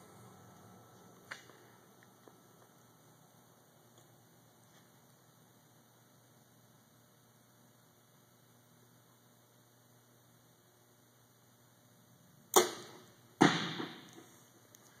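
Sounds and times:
faint steady hum: 0:00.0 - 0:15.0
arrow hitting target: 0:12.5 - 0:14.2.

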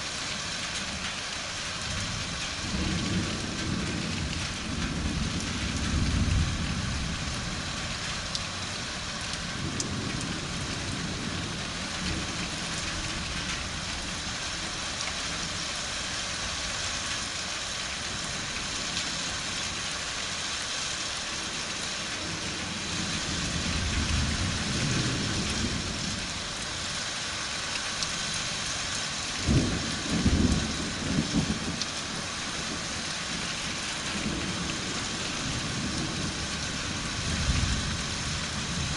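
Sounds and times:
steady rain: 0:00.0 - 0:38.9
thunder rumbling: 0:01.9 - 0:08.1, 0:22.2 - 0:26.6, 0:29.4 - 0:38.9.

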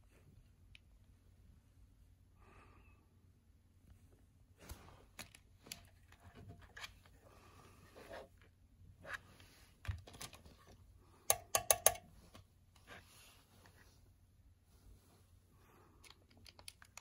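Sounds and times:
handling clicks and rustles: 0:08.0 - 0:13.8, 0:15.9 - 0:17.0.

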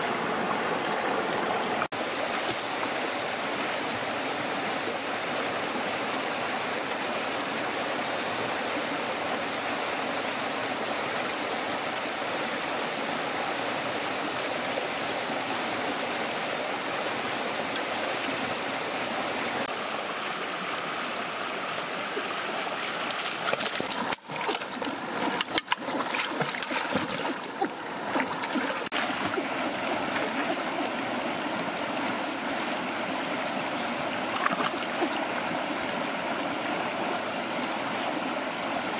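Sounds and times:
stream rushing over stones: 0:00.0 - 0:38.9
splashing in water: 0:22.8 - 0:30.9, 0:34.3 - 0:35.3.

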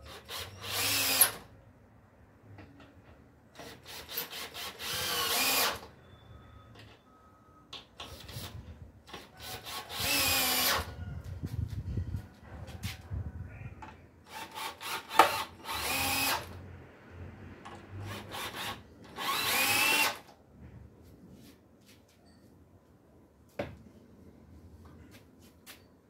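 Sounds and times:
cordless drill into wood: 0:00.1 - 0:01.4, 0:03.6 - 0:05.9, 0:09.1 - 0:10.9, 0:14.3 - 0:16.6, 0:18.0 - 0:20.3.

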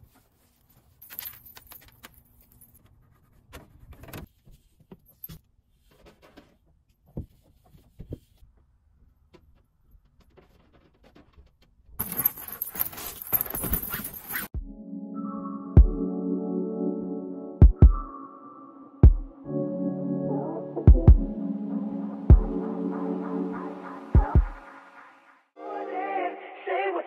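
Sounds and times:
handling clicks and rustles: 0:00.0 - 0:02.8, 0:09.3 - 0:14.5
loud jangling: 0:12.0 - 0:14.5.

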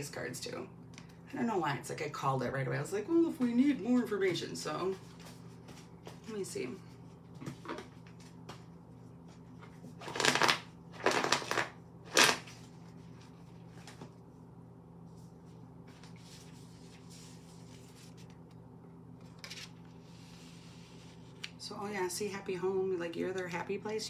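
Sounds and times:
cards being shuffled: 0:09.6 - 0:14.1
card laid out rustle: 0:19.2 - 0:21.6.

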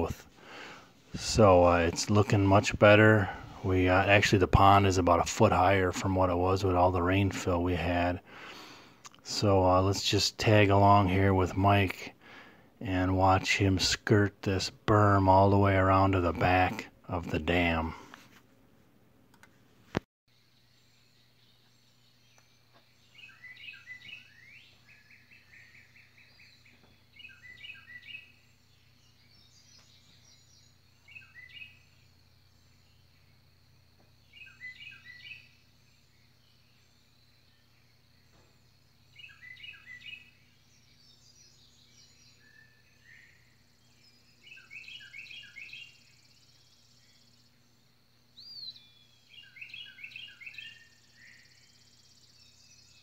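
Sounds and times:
songbird singing: 0:00.0 - 0:18.2, 0:20.3 - 0:53.0
faint bird chirps: 0:20.3 - 0:53.0.

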